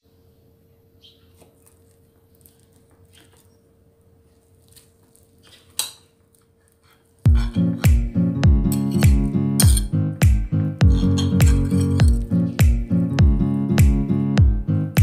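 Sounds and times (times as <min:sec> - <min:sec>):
knife scraping a plate: 0:08.7 - 0:09.9.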